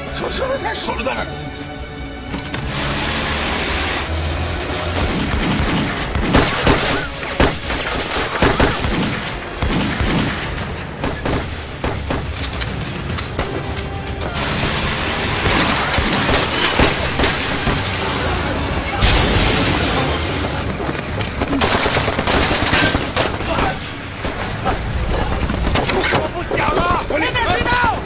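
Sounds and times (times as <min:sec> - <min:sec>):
dramatic background music: 0:00.0 - 0:28.0
booming explosions: 0:02.6 - 0:26.4
rifle gunfire: 0:05.0 - 0:12.5.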